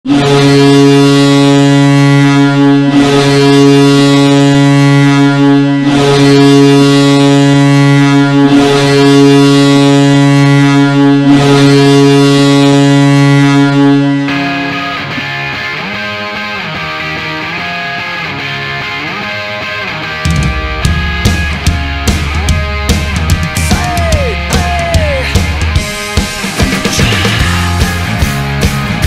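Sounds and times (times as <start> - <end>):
goal horn blasts: 0.1 - 15.3
rock song with electric guitar: 12.8 - 29.0.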